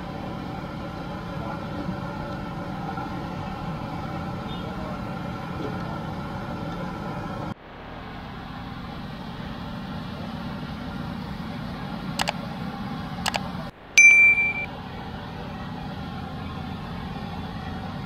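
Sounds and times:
street traffic rumble: 0.0 - 18.0
metallic clinks: 14.0 - 14.7.

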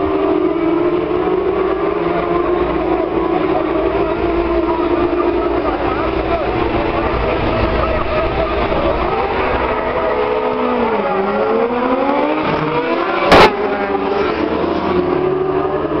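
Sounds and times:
motorbike engines revving: 0.0 - 16.0
loud thump: 13.3 - 13.6.

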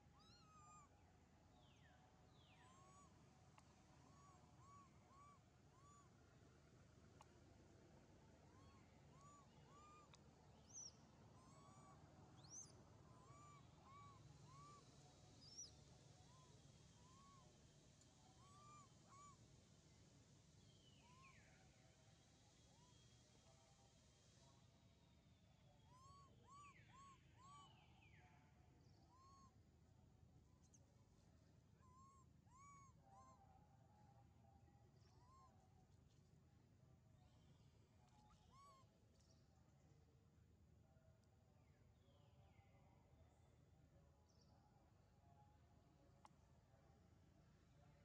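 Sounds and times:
faint bird hooting calls: 0.0 - 0.9, 1.6 - 6.2, 8.4 - 19.5, 20.6 - 21.9, 25.6 - 28.2, 31.7 - 35.7, 38.1 - 38.9.

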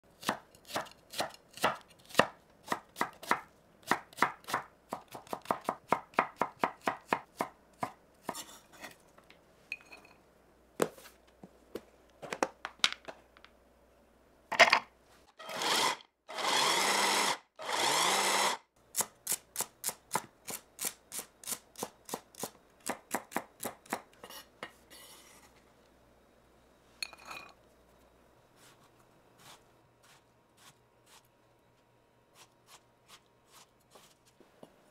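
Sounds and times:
knife chopping on wooden board: 0.2 - 8.4
food chopper running: 15.4 - 18.6.

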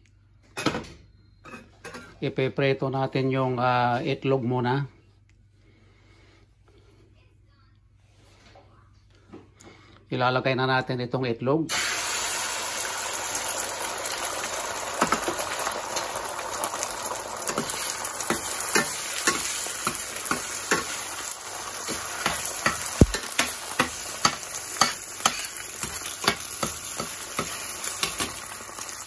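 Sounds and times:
eggs sizzling in oil: 11.7 - 29.0
metal spatula scraping and tapping pan: 17.5 - 21.1, 21.8 - 28.6
sharp knock: 23.0 - 23.2.

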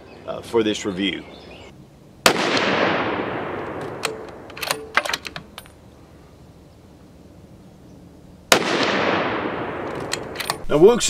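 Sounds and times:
rifle shot echo: 2.2 - 4.9, 8.5 - 10.4
rifle bolt metallic clicks: 3.6 - 5.8, 9.8 - 10.7
spent case clinking: 3.8 - 5.8, 9.9 - 10.7.

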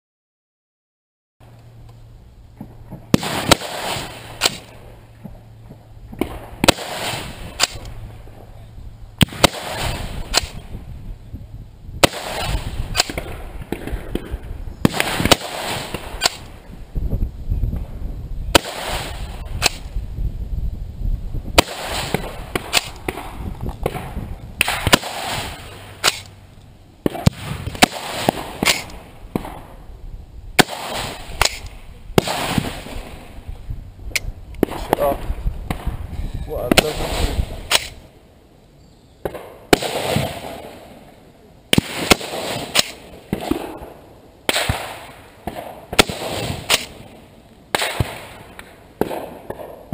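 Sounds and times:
rifle gunshots with echo: 3.0 - 5.0, 6.1 - 8.0, 9.2 - 10.8, 12.0 - 16.5, 18.5 - 19.9, 21.6 - 26.3, 27.0 - 29.8, 30.6 - 33.4, 36.6 - 38.0, 39.2 - 40.9, 41.7 - 49.9.

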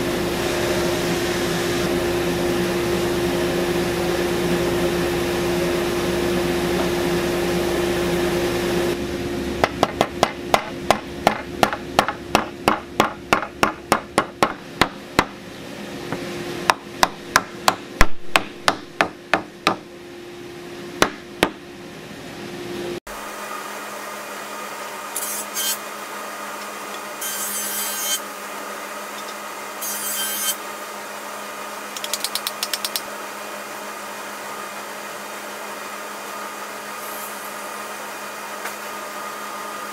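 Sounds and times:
machine hum: 0.0 - 39.9
hammering on wood: 9.6 - 15.4, 16.7 - 19.8, 21.0 - 21.6.

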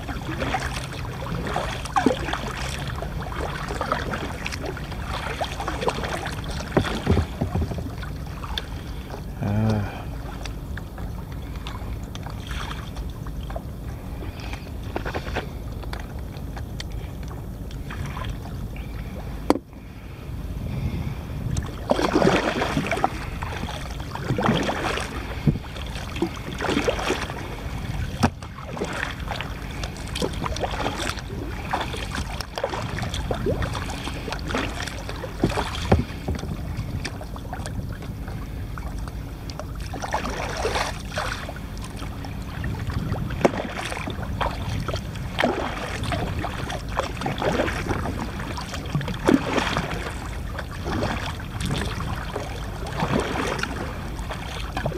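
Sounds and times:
wind on microphone: 0.0 - 8.5, 17.7 - 54.9
paddle strokes splashing: 0.0 - 54.9.

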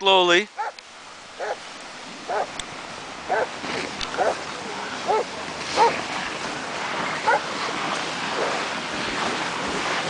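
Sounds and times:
wind noise on microphone: 0.0 - 10.0
dog barking: 0.6 - 0.8, 1.4 - 1.6, 2.3 - 2.5, 3.3 - 3.5, 4.2 - 4.4, 5.1 - 6.0, 7.2 - 7.4.

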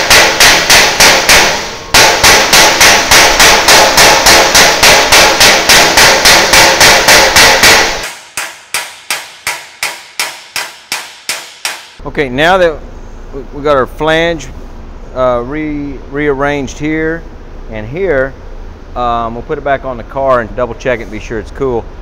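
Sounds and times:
hammer striking steel: 0.0 - 12.0.

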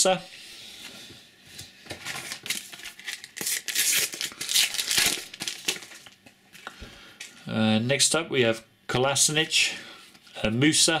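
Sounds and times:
sticker packet torn open: 2.1 - 6.2.

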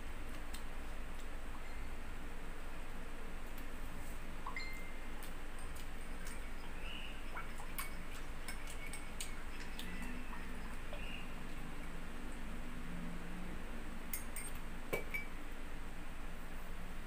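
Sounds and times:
steady low hum: 0.0 - 17.0
metal spoon clinking in mug: 14.1 - 15.3.

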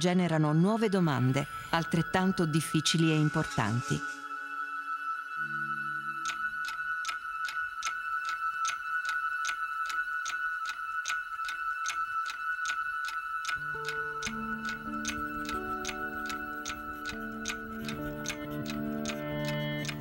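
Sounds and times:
low sustained chords: 0.5 - 20.0
electronic music with ticking: 4.9 - 20.0.

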